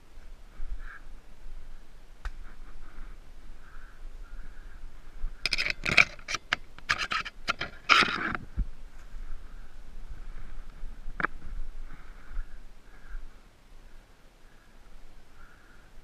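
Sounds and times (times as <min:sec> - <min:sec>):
scraping and clattering: 0:05.4 - 0:08.4.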